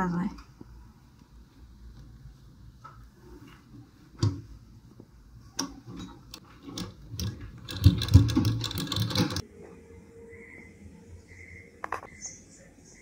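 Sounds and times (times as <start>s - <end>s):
sewing machine clicks: 5.6s - 9.4s
sewing machine stitching: 5.9s - 9.4s.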